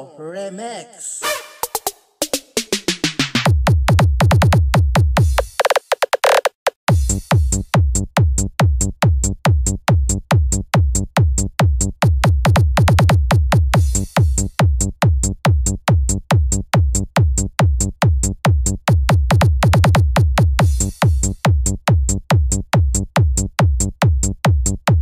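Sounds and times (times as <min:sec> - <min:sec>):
electronic dance music: 0:01.2 - 0:03.5, 0:05.2 - 0:07.2, 0:20.6 - 0:21.4
booming kick drum: 0:03.5 - 0:05.4, 0:06.9 - 0:25.0.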